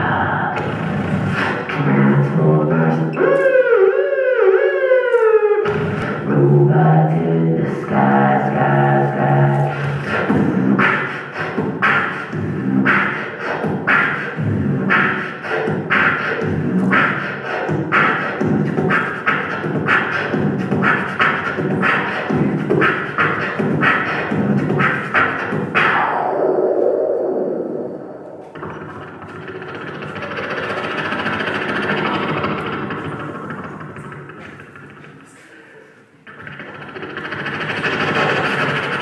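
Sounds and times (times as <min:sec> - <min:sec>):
falling vocal sweep: 0:00.0 - 0:17.7
man beatboxing: 0:00.0 - 0:39.0.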